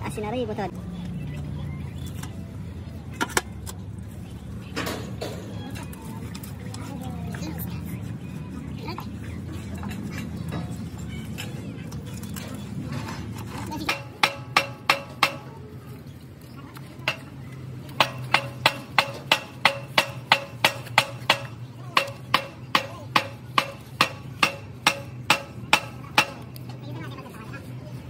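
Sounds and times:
hammer striking metal: 0:13.8 - 0:15.6, 0:18.0 - 0:26.6.

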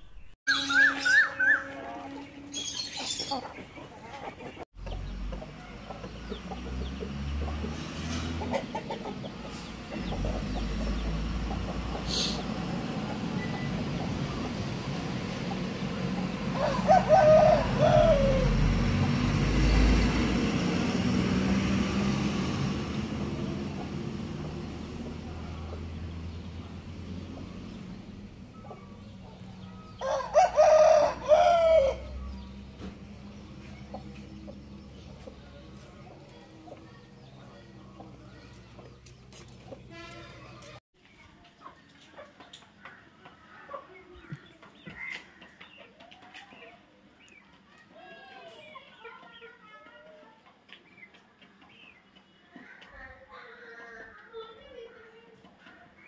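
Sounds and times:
rooster crowing: 0:16.6 - 0:18.7, 0:30.0 - 0:32.2.

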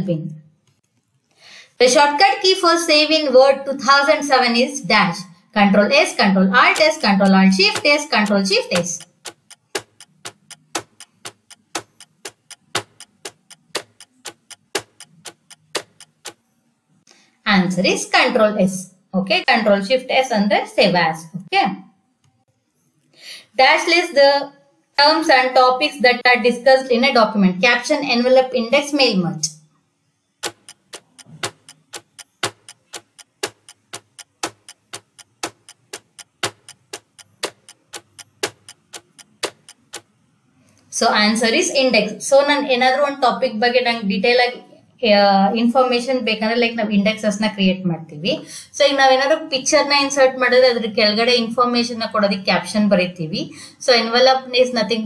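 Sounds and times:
countdown timer ticking: 0:06.6 - 0:16.4, 0:30.4 - 0:40.2.

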